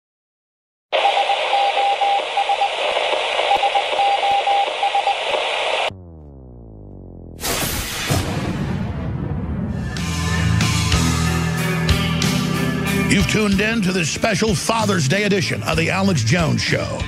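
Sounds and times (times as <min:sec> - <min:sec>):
radio static: 0:01.0 - 0:05.9
morse code beeping: 0:03.5 - 0:05.2
low falling tone: 0:05.9 - 0:07.4
intro music: 0:05.9 - 0:17.0
loud impact hit: 0:07.3 - 0:10.6.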